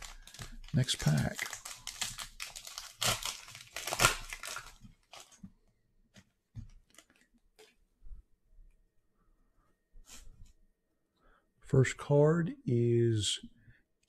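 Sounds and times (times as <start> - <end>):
foil wrapper tearing: 0.0 - 5.4
wrapper rustling: 0.0 - 5.4.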